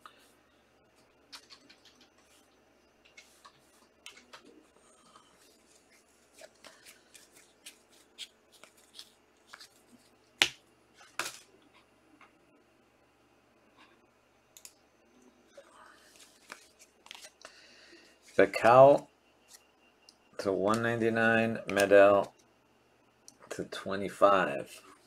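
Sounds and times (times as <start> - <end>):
cards clicking and rustling: 5.7 - 11.5.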